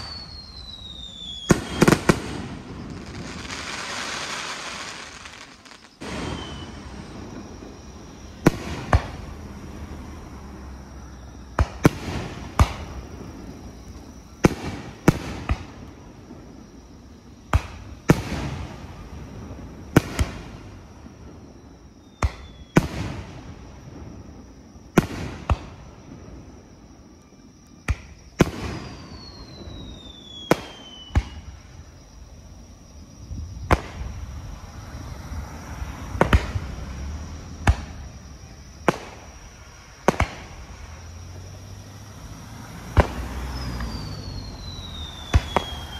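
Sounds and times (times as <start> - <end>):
falling whistle: 0.0 - 7.3, 28.5 - 31.6, 43.2 - 45.9.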